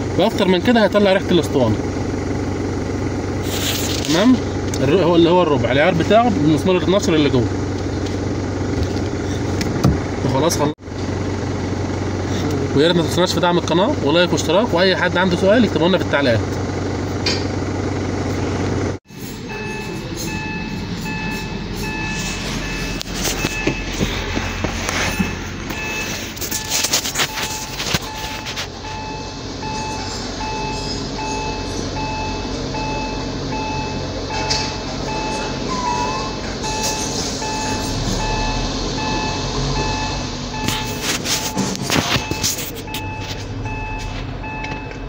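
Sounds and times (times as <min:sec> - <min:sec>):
engine idle hum: 0:00.0 - 0:45.0
rapid electronic beeping: 0:19.1 - 0:34.0, 0:35.1 - 0:44.9.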